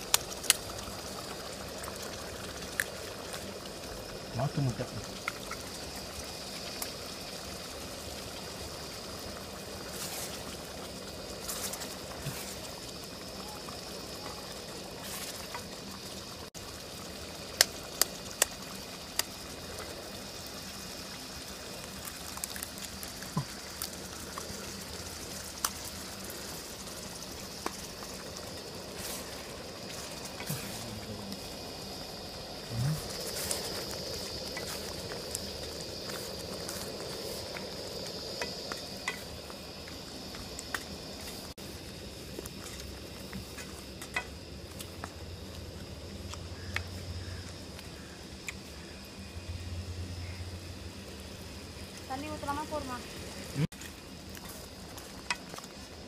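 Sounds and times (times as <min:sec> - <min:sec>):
curry bubbling in pan: 0:00.0 - 0:49.4, 0:50.1 - 0:56.0
gas stove hiss: 0:00.0 - 0:56.0.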